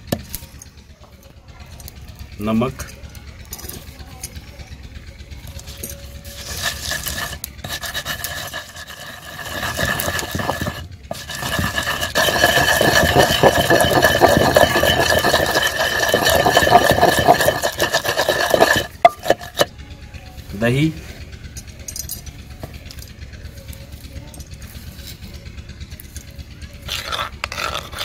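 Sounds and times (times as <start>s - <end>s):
wooden pestle grinding in stone mortar: 6.2s - 19.7s, 26.8s - 28.0s.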